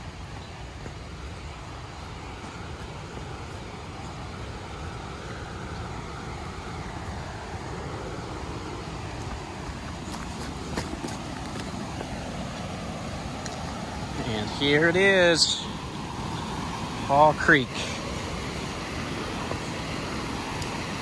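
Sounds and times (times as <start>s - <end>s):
creek rushing: 0.0s - 21.0s.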